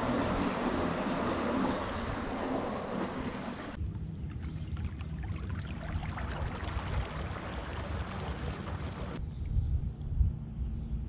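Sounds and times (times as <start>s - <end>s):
water rushing and lapping: 0.0s - 9.2s
wind rumbling on microphone: 0.0s - 11.0s
small splashes: 1.0s - 9.2s.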